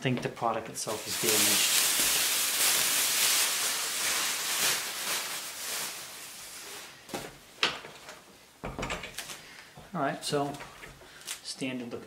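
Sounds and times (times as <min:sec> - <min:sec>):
plastic bag crinkling: 0:00.8 - 0:07.2.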